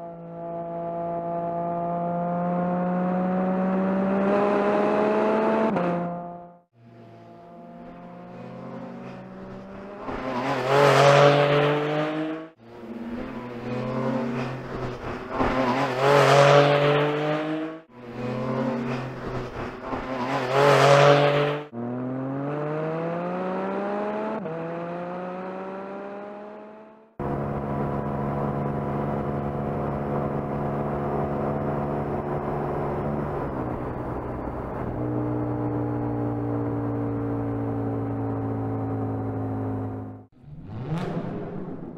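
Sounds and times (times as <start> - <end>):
sports car engine revving past: 20.1 - 27.1.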